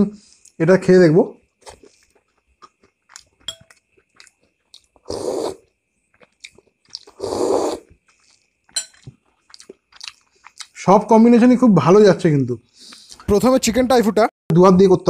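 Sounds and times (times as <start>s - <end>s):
slurping soup: 4.0s - 10.7s.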